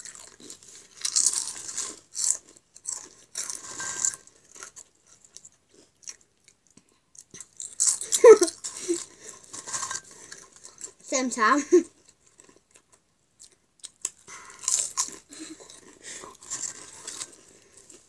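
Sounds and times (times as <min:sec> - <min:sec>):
crisps crunching: 0:00.0 - 0:06.6, 0:07.2 - 0:11.1, 0:12.0 - 0:18.0
girl's voice: 0:11.1 - 0:11.9.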